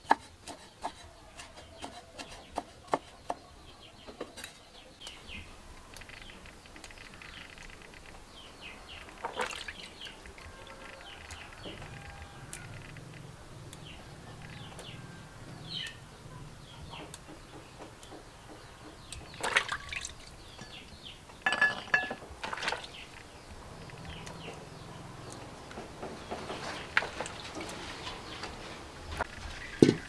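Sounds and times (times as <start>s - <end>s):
water splashing in a plastic basin: 9.1s - 10.8s, 19.3s - 20.3s, 22.4s - 23.2s.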